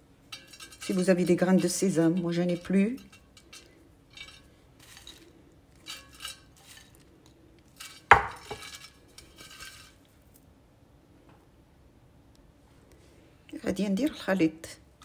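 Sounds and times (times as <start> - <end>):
almonds clattering into metal pan: 7.7 - 10.0.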